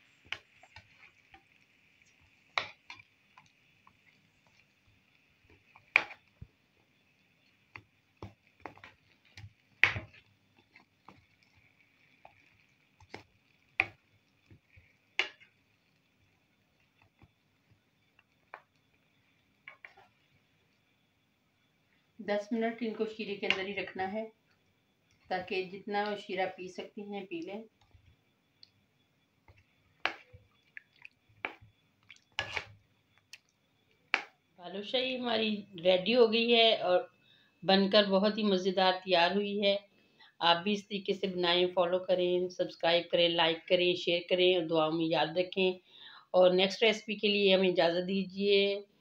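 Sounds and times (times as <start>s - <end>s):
faint high-pitched hum: 17.3s - 49.0s
syrup splashing and dripping: 29.5s - 33.6s
spatula scraping in syrup: 30.0s - 32.8s
spatula scraping frying pan: 32.3s - 32.8s.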